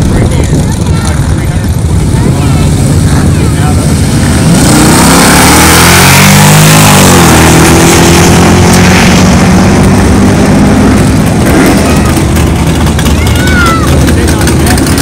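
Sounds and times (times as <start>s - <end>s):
drag racing cars at full throttle: 0.0s - 15.0s.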